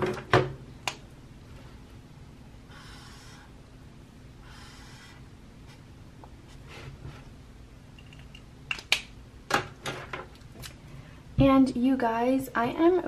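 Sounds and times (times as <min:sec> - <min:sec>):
pencil writing on paper: 0:02.8 - 0:03.5, 0:04.5 - 0:05.2.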